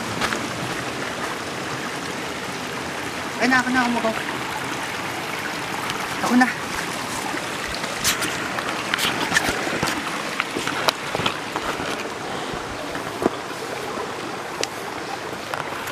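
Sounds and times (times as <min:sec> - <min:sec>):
stream rushing: 0:00.0 - 0:15.9
footsteps on stones and gravel: 0:00.2 - 0:01.4, 0:06.6 - 0:14.0.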